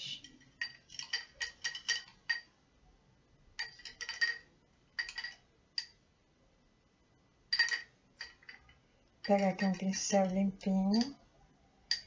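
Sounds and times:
paintbrush clinking against glass jar: 0:00.1 - 0:02.5, 0:03.6 - 0:05.9, 0:07.5 - 0:09.8.

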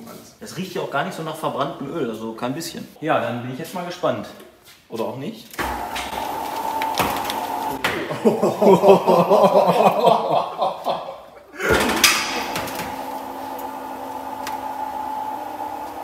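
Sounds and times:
man laughing: 0:08.0 - 0:12.6
steady mechanical hum: 0:11.6 - 0:16.0.

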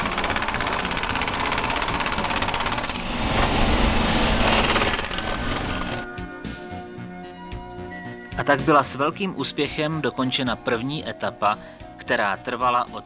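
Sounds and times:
sleeper screw driving machine: 0:00.0 - 0:06.0.

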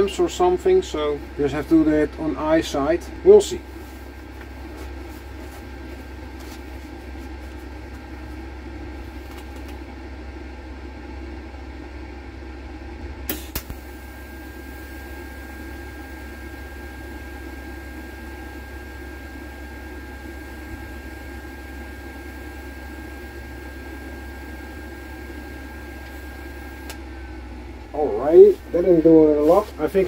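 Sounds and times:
welding machine humming: 0:00.0 - 0:10.2, 0:13.2 - 0:30.0
thin steady whine: 0:00.0 - 0:30.0.

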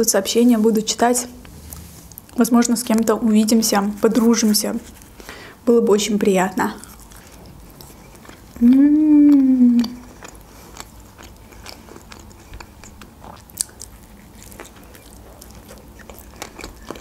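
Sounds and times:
person chewing with wet clicks: 0:06.5 - 0:17.0
person humming mmm: 0:08.6 - 0:10.1.

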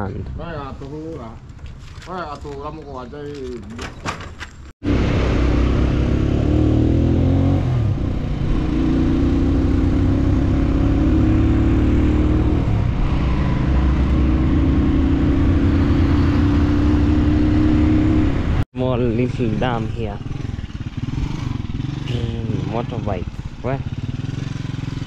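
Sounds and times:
motorcycle engine running: 0:19.2 - 0:25.0.

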